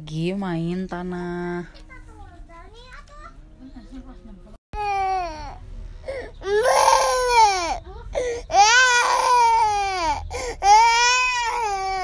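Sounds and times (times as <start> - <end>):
child breathing: 6.0 - 6.4, 8.1 - 8.5, 10.3 - 10.7.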